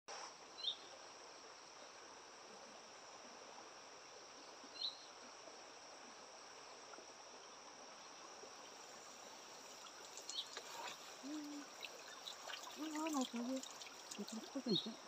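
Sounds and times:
insects trilling: 0.2 - 15.0
water dripping and splashing: 8.4 - 15.0
bird chirp: 9.8 - 15.0.

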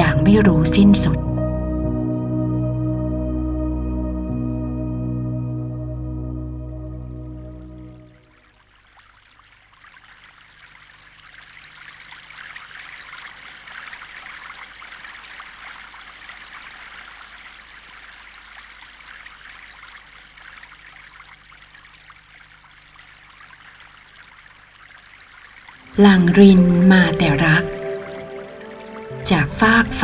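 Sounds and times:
stream water trickling: 8.1 - 30.0.

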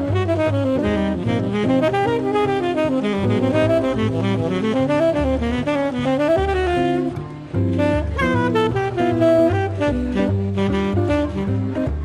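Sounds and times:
jazz guitar: 0.0 - 12.0
saxophone melody: 0.0 - 12.0
walking upright bass: 0.0 - 12.0.

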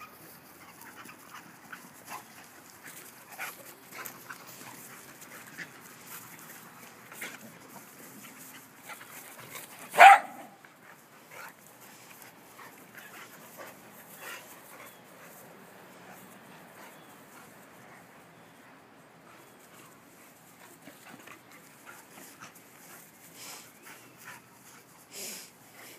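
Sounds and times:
dog barking: 10.0 - 10.6.

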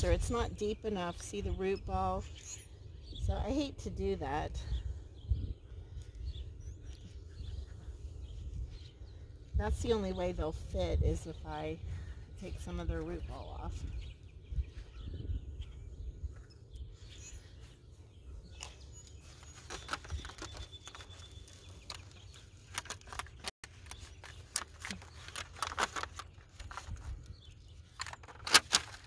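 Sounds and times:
hands rustling potting soil: 16.3 - 28.0.

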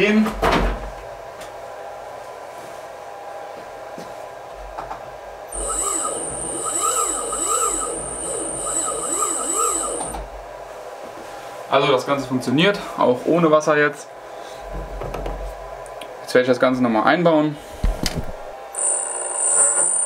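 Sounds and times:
milling spindle whining: 5.5 - 10.3, 18.8 - 20.0.

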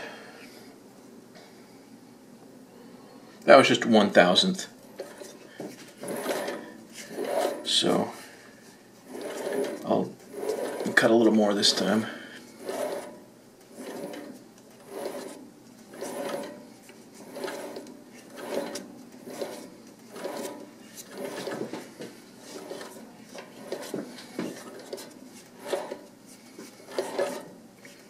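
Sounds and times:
threading tool rasping on brass: 6.0 - 7.7, 9.1 - 11.1, 12.6 - 16.6, 17.2 - 21.7, 22.5 - 27.5.

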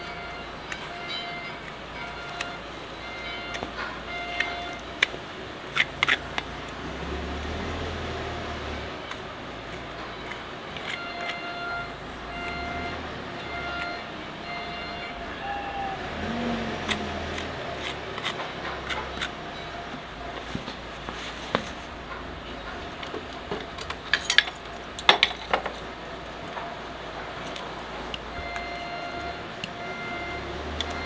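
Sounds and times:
sharp clicks: 0.7 - 6.8, 16.8 - 20.1
knife scraping hoof: 16.8 - 19.4.

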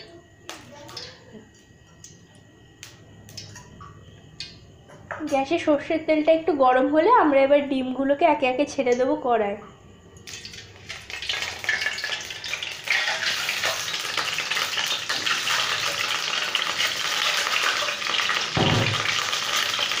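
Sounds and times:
eggs sizzling in hot oil: 0.0 - 2.2, 10.2 - 20.0
low thump: 18.6 - 19.1.

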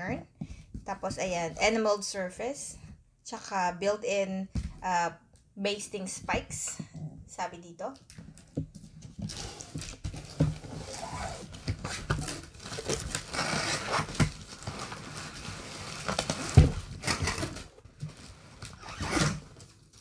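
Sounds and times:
plastic wrap crinkling: 8.0 - 20.0.

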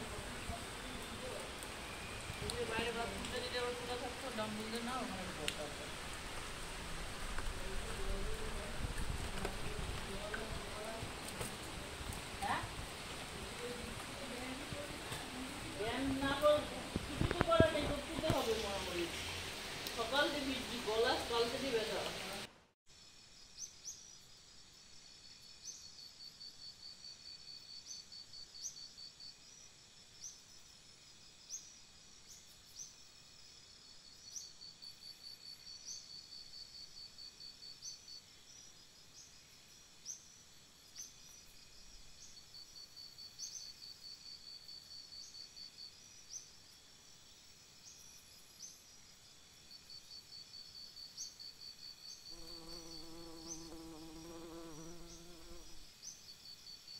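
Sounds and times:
rain noise: 0.0 - 22.6
crickets chirping faintly: 0.0 - 56.9.

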